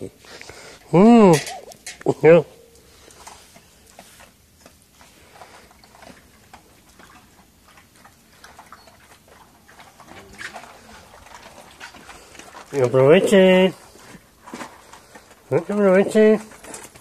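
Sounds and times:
dog whining: 0:01.0 - 0:01.9.

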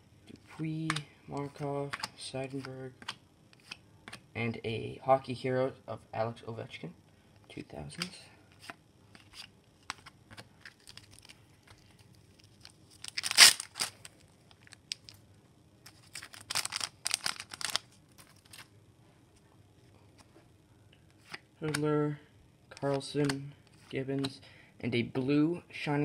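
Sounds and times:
cards clicking: 0:00.8 - 0:04.2, 0:21.2 - 0:21.8, 0:22.7 - 0:24.4
foil wrapper crinkling: 0:09.3 - 0:15.2, 0:15.9 - 0:18.7
foil wrapper tearing: 0:10.7 - 0:15.2, 0:15.9 - 0:18.7.

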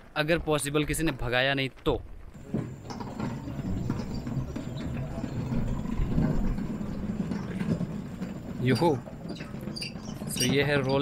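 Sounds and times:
prayer wheels rumbling: 0:02.3 - 0:11.0.

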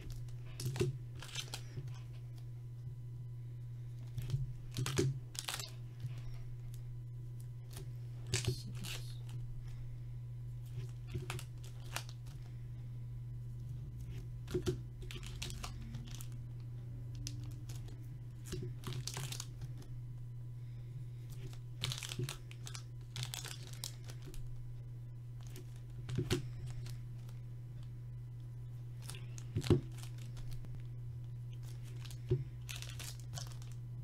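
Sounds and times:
foil packs crinkling: 0:00.0 - 0:02.4, 0:03.9 - 0:06.8, 0:07.6 - 0:09.9, 0:10.7 - 0:12.6, 0:14.0 - 0:16.4, 0:17.1 - 0:19.9, 0:21.3 - 0:24.6, 0:25.4 - 0:27.4, 0:28.9 - 0:33.9
steady low hum: 0:00.0 - 0:34.0.

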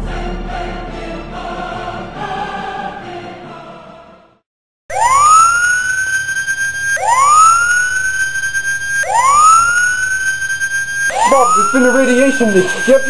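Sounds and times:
alarm siren rising whine: 0:04.9 - 0:13.0.

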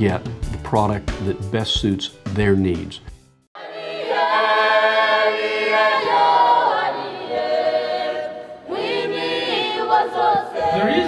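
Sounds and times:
choir singing unaccompanied: 0:03.6 - 0:11.0.

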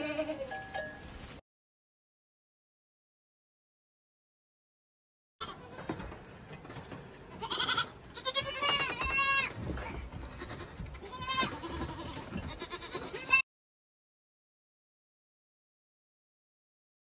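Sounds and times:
goat kids bleating: 0:00.0 - 0:00.6, 0:05.4 - 0:06.2, 0:07.3 - 0:13.4.

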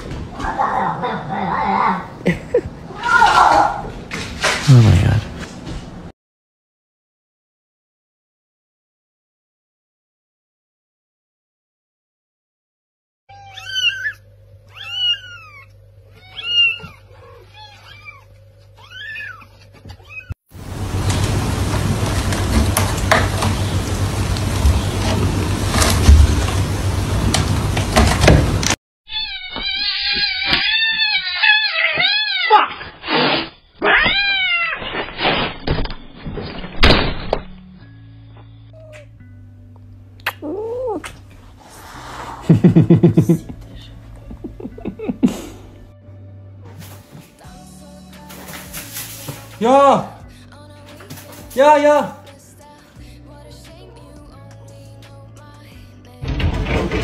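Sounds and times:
kitten mewing: 0:13.3 - 0:20.3
cats yowling and screeching: 0:13.3 - 0:20.4, 0:29.1 - 0:33.1, 0:33.8 - 0:35.0.

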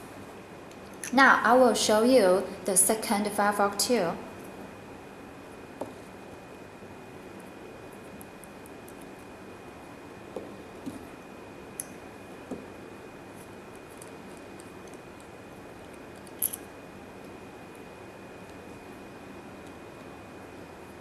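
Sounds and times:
small metal parts clicking: 0:16.2 - 0:16.6.

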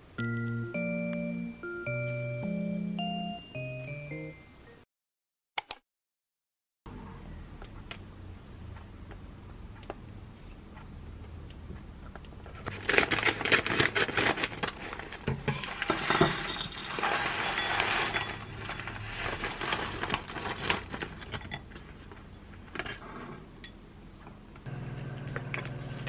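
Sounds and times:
pouch tearing open: 0:12.7 - 0:14.7
plastic pouch crinkling: 0:12.7 - 0:15.2.

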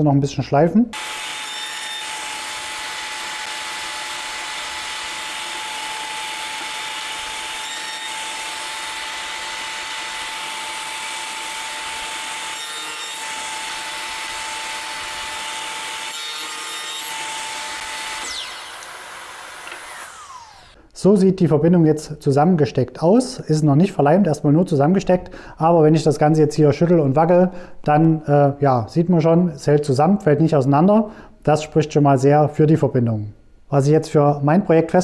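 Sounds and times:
electric sander whining: 0:01.0 - 0:01.4, 0:13.2 - 0:20.8.

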